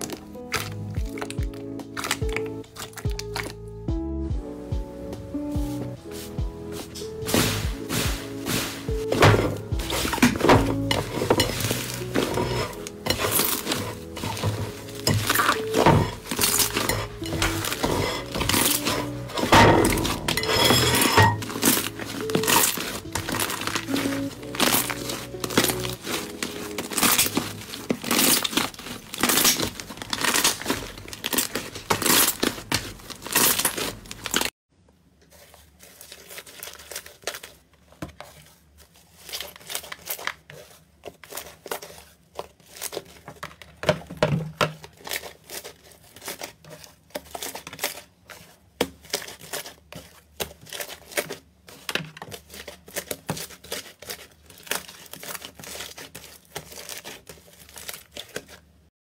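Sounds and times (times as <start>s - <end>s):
hands squeezing slime: 0.0s - 3.6s, 21.4s - 34.5s.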